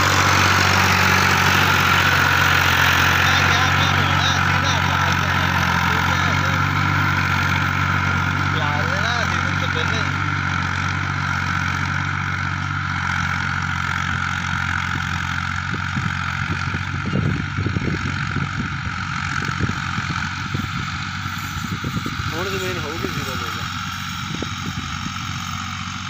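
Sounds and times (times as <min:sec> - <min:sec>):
diesel tractor engine running: 0:00.0 - 0:26.0.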